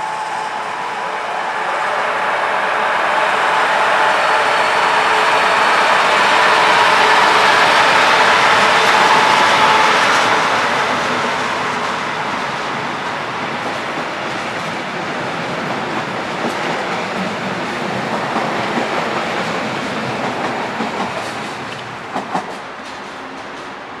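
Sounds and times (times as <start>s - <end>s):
train wheels clattering over rail joints: 20.0s - 23.8s.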